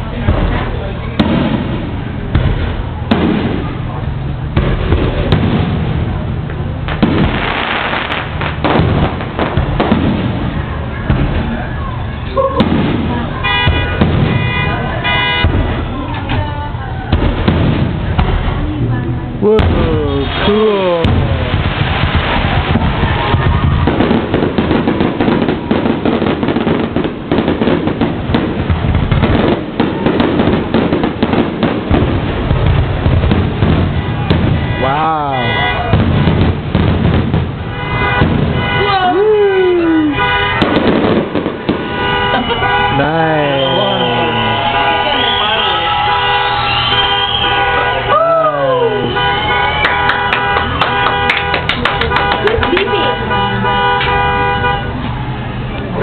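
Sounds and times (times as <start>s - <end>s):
continuous low rumble: 0.0s - 43.5s
fireworks bursting with sharp bangs: 0.0s - 56.0s.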